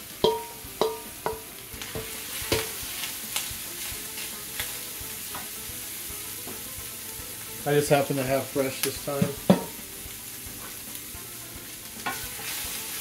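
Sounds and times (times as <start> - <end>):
kernels sizzling in skillet: 0.0 - 13.0
wooden spoon knocking on metal bowl: 0.2 - 2.7, 9.2 - 9.8.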